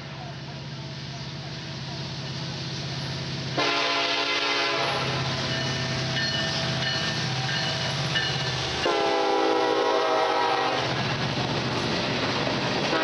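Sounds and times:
diesel locomotive engines rumbling: 0.0s - 13.0s
locomotive horn blasts: 3.6s - 5.3s, 8.8s - 11.0s.

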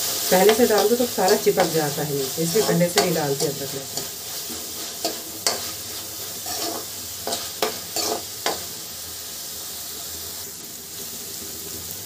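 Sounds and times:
vegetables sizzling: 0.0s - 12.0s
steel spoon scraping metal pan: 0.4s - 8.7s.

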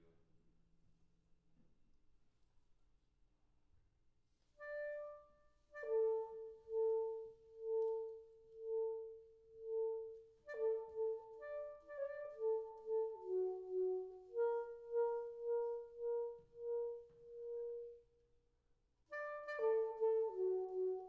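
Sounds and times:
soprano saxophone: 4.6s - 18.2s, 19.1s - 21.0s.

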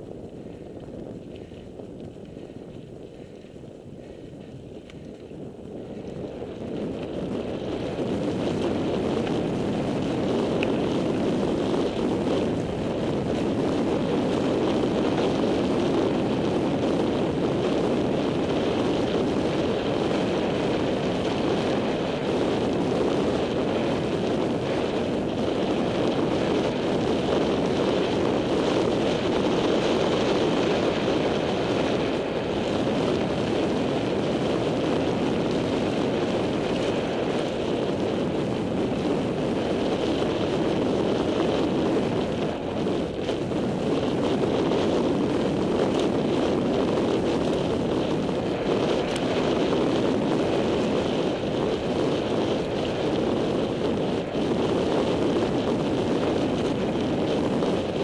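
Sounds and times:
bike tyres rolling on dirt: 0.0s - 58.0s
wind buffeting microphone: 0.0s - 58.0s.

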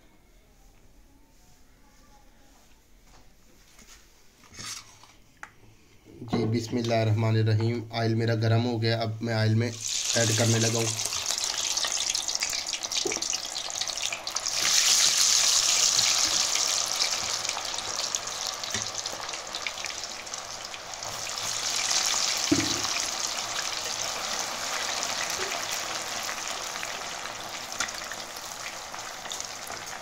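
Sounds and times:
fries sizzling in hot oil: 9.7s - 30.0s.

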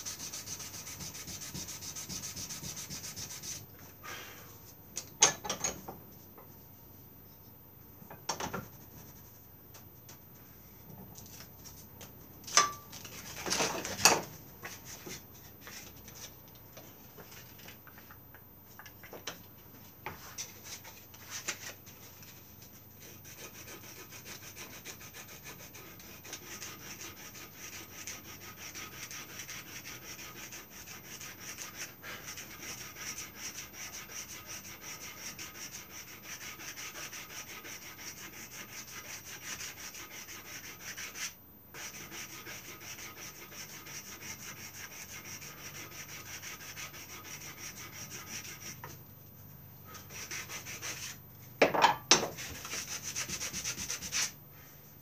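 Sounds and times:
sanding wood by hand: 0.0s - 3.6s, 23.0s - 48.8s, 50.1s - 51.2s, 52.4s - 54.4s.

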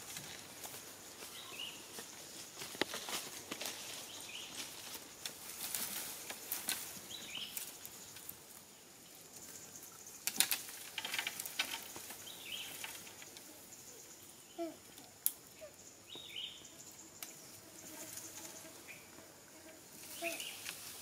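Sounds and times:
dry leaves crackling and rustling: 0.0s - 8.6s, 10.2s - 13.4s, 19.9s - 21.0s.

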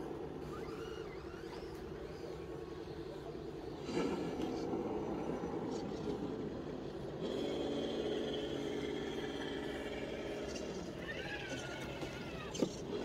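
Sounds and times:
electric motor whining: 7.1s - 13.0s.

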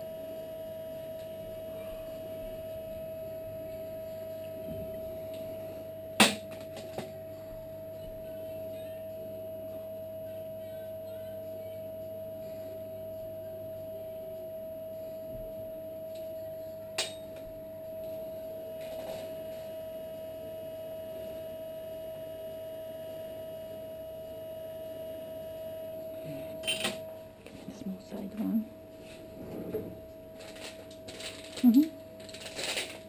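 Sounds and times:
high-pitched electrical whine: 0.0s - 33.0s
metal instrument clinking on tray: 26.6s - 27.0s.

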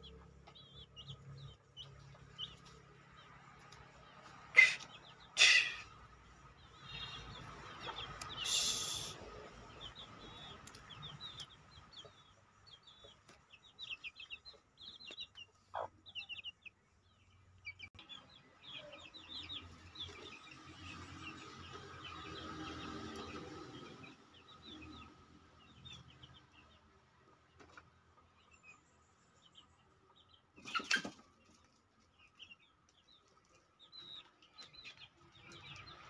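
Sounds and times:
chicks peeping: 0.0s - 36.0s
hens clucking: 3.6s - 16.8s, 30.6s - 32.1s.

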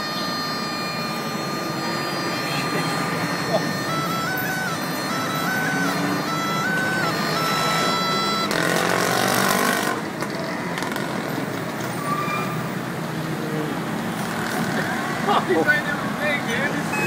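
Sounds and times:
gourd pipe playing reedy tone: 0.0s - 11.1s, 16.7s - 17.0s
street background noise: 0.0s - 17.0s.

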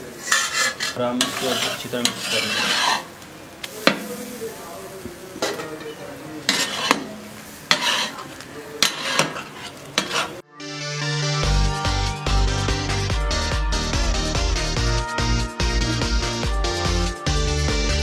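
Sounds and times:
metal spatulas scraping on griddle: 0.0s - 3.2s, 5.4s - 10.4s
food sizzling: 0.0s - 10.5s
background music: 10.4s - 18.0s.

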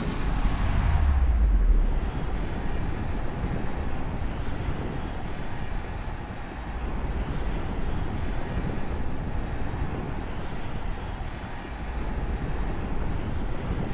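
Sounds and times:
deep rumbling: 0.0s - 4.0s.

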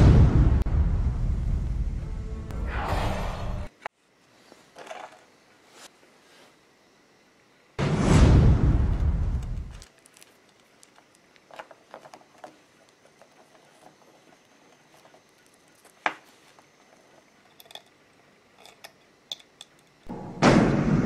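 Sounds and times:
loud steady low sound: 0.0s - 2.8s, 7.8s - 9.7s
hands handling wires clicks and rustles: 9.5s - 20.1s.

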